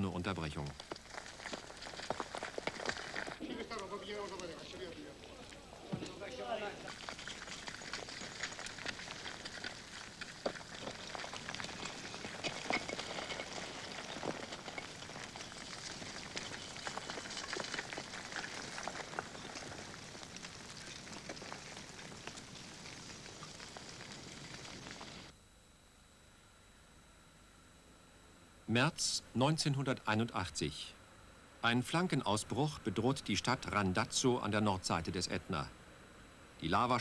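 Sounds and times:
steady hiss: 0.0 - 25.4
lava flow crackling: 0.4 - 25.4.

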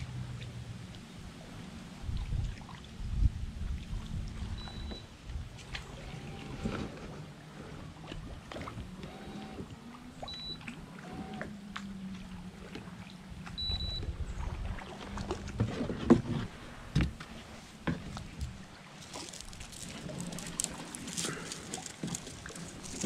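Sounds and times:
short high beeps: 4.6 - 5.0, 10.3 - 10.6, 13.6 - 14.0.

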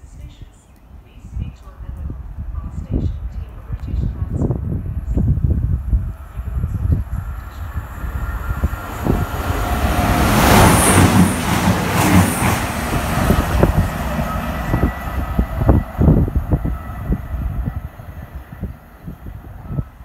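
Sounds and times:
heavy train rumble: 4.0 - 20.0
train rushing past: 5.9 - 20.0
train wheel clacks: 10.0 - 13.9.

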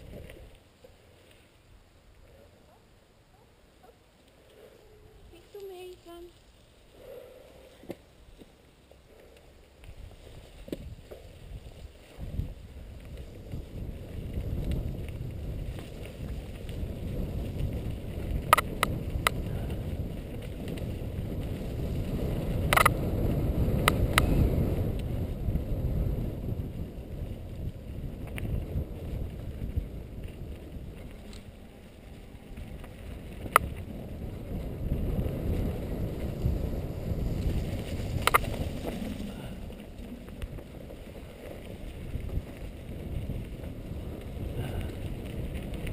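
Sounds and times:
bike tyre rumble: 0.0 - 45.9
wind noise on microphone: 9.7 - 45.9.

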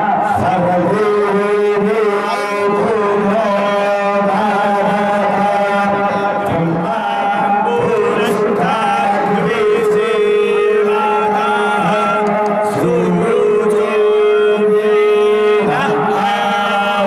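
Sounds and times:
man chanting into microphone: 0.0 - 17.0.

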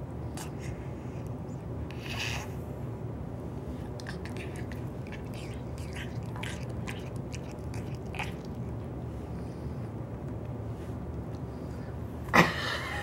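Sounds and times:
steady low hum: 0.0 - 13.0
cat mouth wet clicks and smacks: 3.9 - 8.8.

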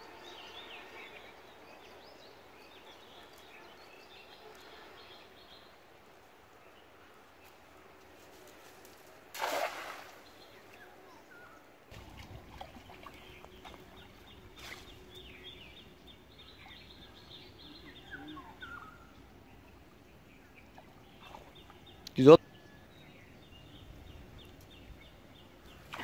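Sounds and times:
net splashing into pond: 9.3 - 10.4, 11.9 - 13.8
small birds chirping: 10.2 - 26.0.

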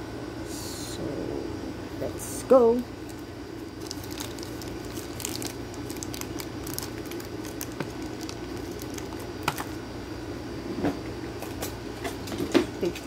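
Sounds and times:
plastic wrap crinkling: 3.0 - 9.8.

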